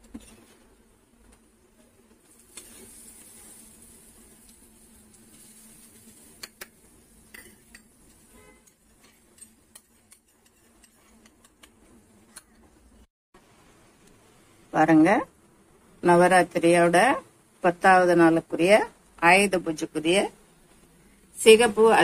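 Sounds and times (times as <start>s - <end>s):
faint sizzle: 0.0s - 22.0s
spoon scraping metal pans: 5.3s - 11.6s.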